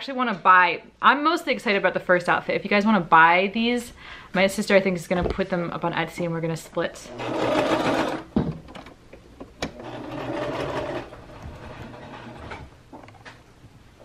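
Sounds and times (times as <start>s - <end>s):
sewing machine stitching: 7.1s - 8.9s, 9.6s - 12.7s.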